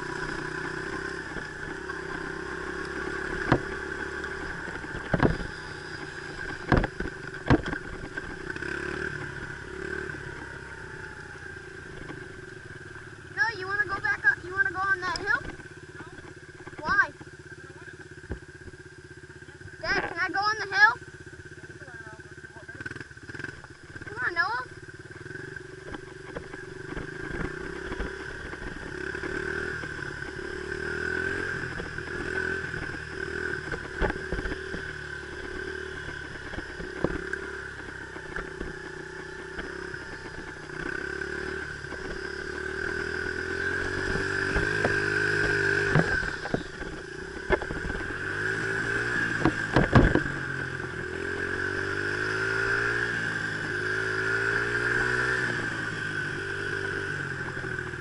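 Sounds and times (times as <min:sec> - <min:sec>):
dirt bike engine revving: 0:00.0 - 0:58.0
bike clattering over bumps: 0:04.7 - 0:05.5, 0:06.4 - 0:08.8, 0:49.3 - 0:50.4.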